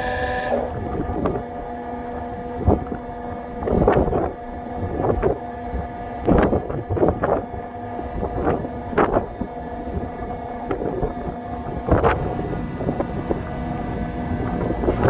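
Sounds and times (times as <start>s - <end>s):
turbine machinery hum: 12.2s - 15.0s.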